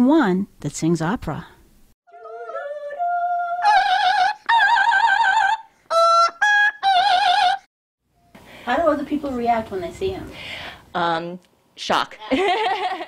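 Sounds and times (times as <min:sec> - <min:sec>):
parrot singing high notes: 0:02.1 - 0:07.7.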